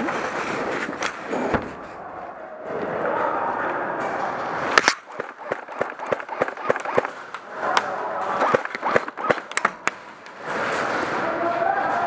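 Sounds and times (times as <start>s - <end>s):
airsoft guns firing: 4.8s - 10.0s.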